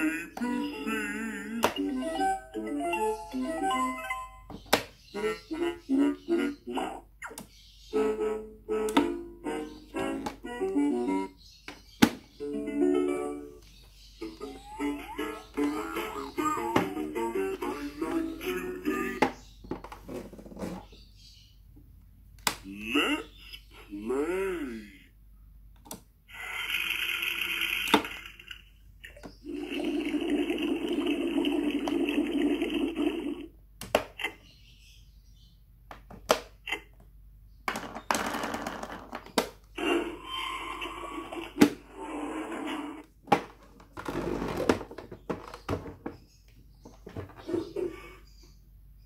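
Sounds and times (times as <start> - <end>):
toy electronic sound clips: 26.3 - 33.4.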